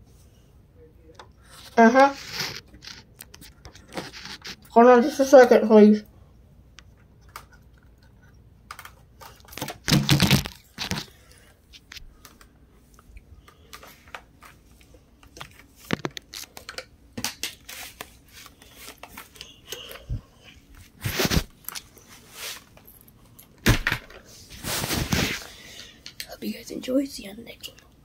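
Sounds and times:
phone scraping on helmet facemask: 0:01.5 - 0:03.1, 0:03.7 - 0:04.7, 0:20.9 - 0:21.5.

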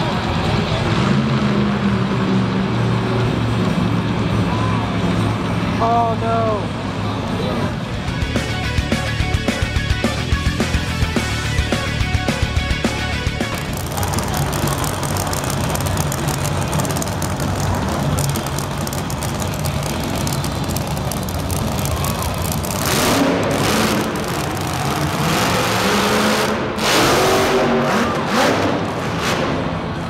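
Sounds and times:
truck engine rumbling and revving: 0:00.0 - 0:30.0.

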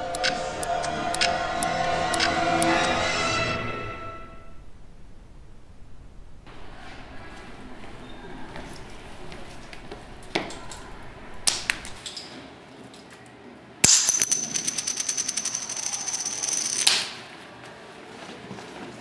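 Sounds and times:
rapid metallic clicking with ring: 0:13.8 - 0:17.1
wristwatches clattering onto floor: 0:13.8 - 0:17.2.

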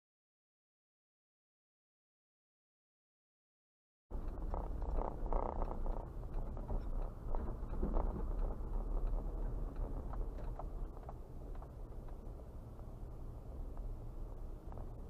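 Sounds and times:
faint ticks and knocks: 0:04.1 - 0:12.9
car engine and road rumble: 0:04.1 - 0:15.0.

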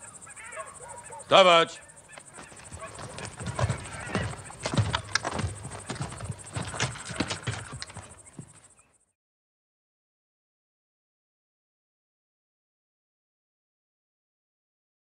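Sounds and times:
clicks and knocks of guns: 0:02.1 - 0:05.5.

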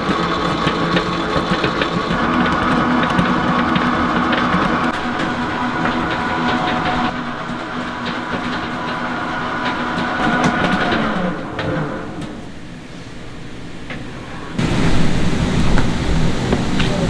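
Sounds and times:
mechanical clatter: 0:00.0 - 0:12.8
stand mixer motor whine: 0:00.0 - 0:12.8.

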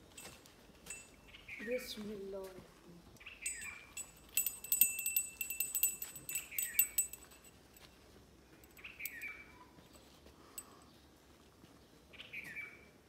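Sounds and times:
small metal bells jingling: 0:00.0 - 0:01.4, 0:03.4 - 0:07.9, 0:08.6 - 0:10.9
bird chirping: 0:03.2 - 0:07.5, 0:08.6 - 0:10.0.

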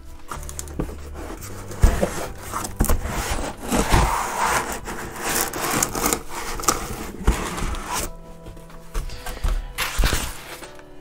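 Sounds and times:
cardboard box rubbing and scraping: 0:00.3 - 0:09.0.

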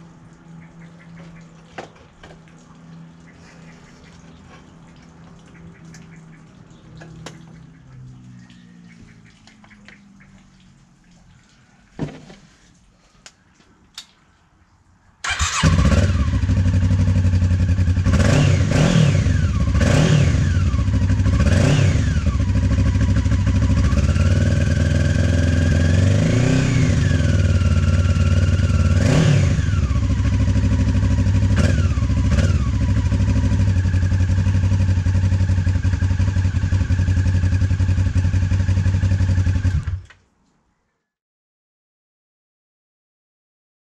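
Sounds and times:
motorcycle engine idling and revving: 0:15.2 - 0:40.2.

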